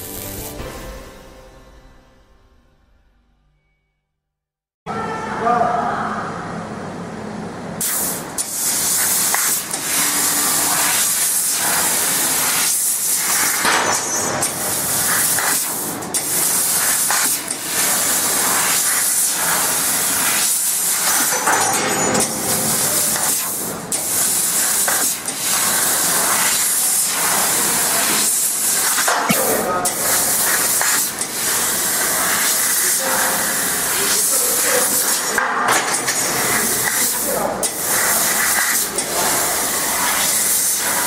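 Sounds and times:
loud hiss of gas jet: 7.8 - 21.4, 22.7 - 35.4, 36.2 - 41.0.

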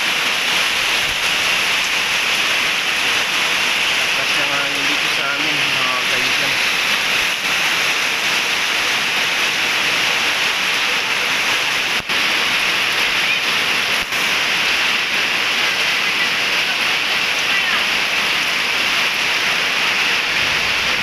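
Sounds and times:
heavy rain: 0.0 - 21.0
gusting wind: 19.5 - 21.0.

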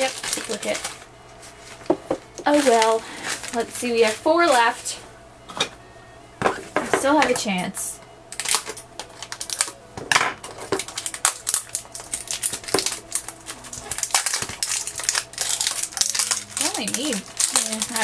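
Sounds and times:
scissors snipping plastic: 0.0 - 1.0, 8.3 - 9.8, 10.4 - 18.0.

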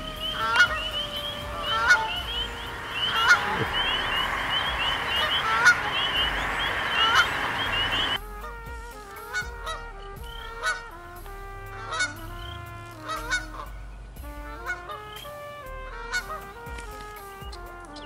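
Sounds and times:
spring peepers chorus: 0.0 - 8.2
steady tones stepping in pitch: 0.0 - 15.4
geese honking: 0.0 - 18.0.

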